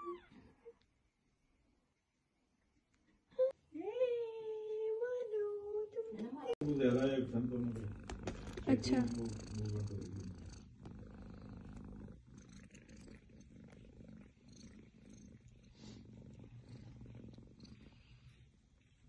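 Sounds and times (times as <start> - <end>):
kitten purring: 6.6 - 19.0.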